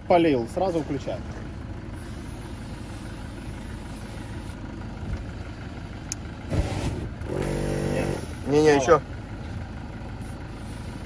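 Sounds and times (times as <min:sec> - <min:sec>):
vehicle engine idling: 0:00.0 - 0:11.0
air compressor buzzing: 0:02.0 - 0:05.5, 0:06.5 - 0:08.5, 0:10.2 - 0:11.0.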